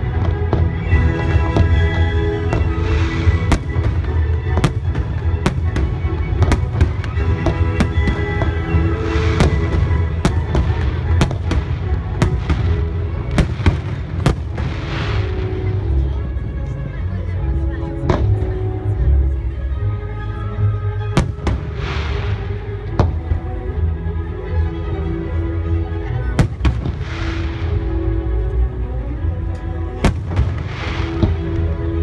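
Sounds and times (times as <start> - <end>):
fireworks bangs and crackles: 0.0 - 16.6, 21.2 - 23.7, 26.4 - 28.0, 30.0 - 32.0
music playing: 0.0 - 32.0.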